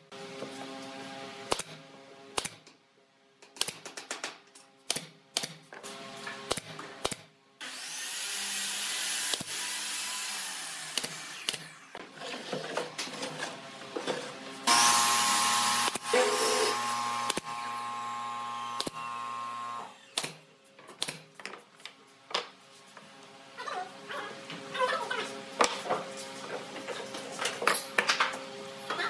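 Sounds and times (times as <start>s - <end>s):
pneumatic nailer firing: 6.4s - 7.3s, 9.1s - 9.9s, 10.8s - 11.8s, 14.7s - 21.3s
hiss of shop machinery: 14.7s - 17.8s
loud steady machine sound: 14.7s - 19.9s.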